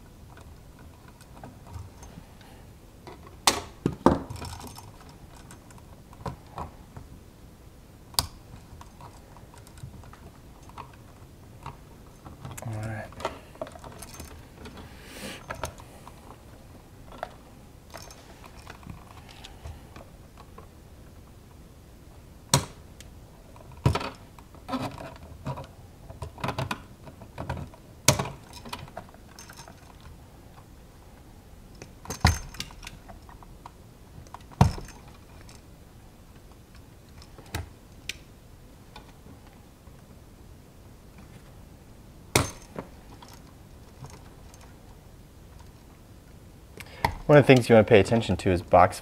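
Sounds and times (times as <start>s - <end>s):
sharp clicks and snaps: 8.1s - 11.0s.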